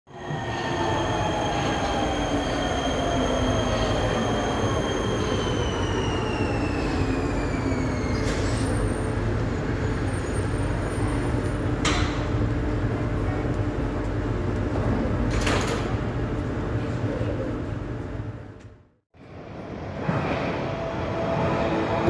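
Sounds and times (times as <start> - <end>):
train whining tones falling in pitch: 0.1 - 10.1.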